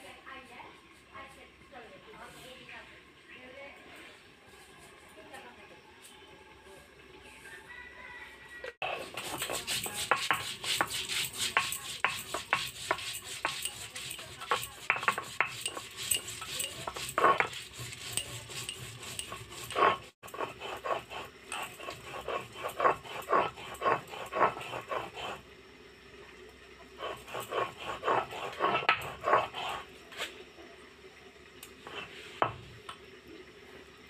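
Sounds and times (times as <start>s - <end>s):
stone roller scraping on grinding stone: 8.8s - 25.5s, 26.9s - 30.3s, 31.8s - 32.6s.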